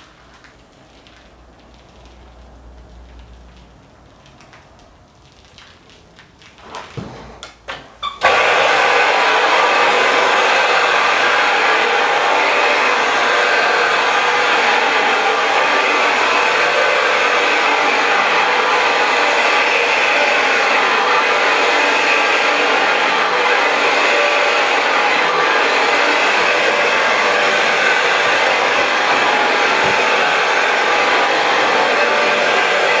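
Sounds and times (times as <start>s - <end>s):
rug scrubbing machine running: 8.2s - 33.0s.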